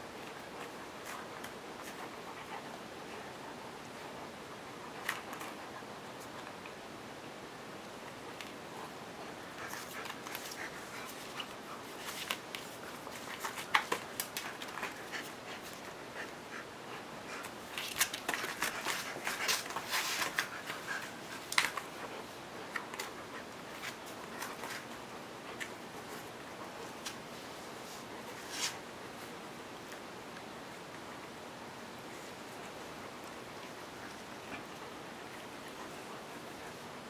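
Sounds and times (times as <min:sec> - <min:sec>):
paws scratching and scraping: 0:00.2 - 0:06.6, 0:08.2 - 0:29.3
dog sniffing and snuffling: 0:08.4 - 0:29.3.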